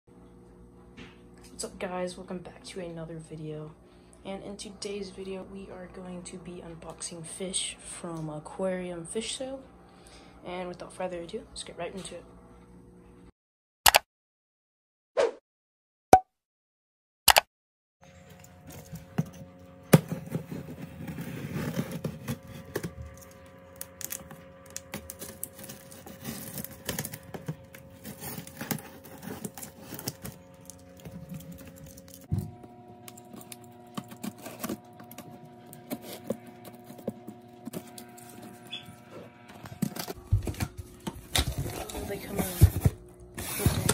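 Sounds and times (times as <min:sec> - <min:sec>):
steady low hum: 0:18.0 - 0:43.9
cardboard box scrapes and taps: 0:41.5 - 0:43.9.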